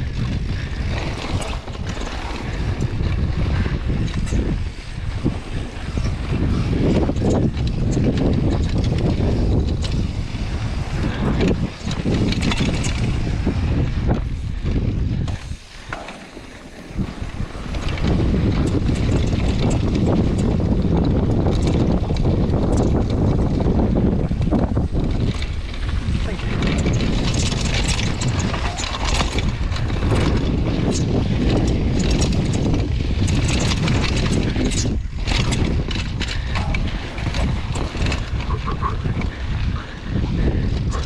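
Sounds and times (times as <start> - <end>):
bike clattering over bumps: 0.0 - 41.0
wind buffeting microphone: 0.0 - 41.0.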